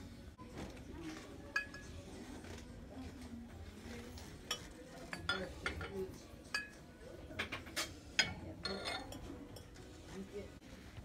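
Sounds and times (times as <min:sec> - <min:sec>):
ceramic mugs clinking: 0:01.5 - 0:02.1, 0:04.3 - 0:09.9.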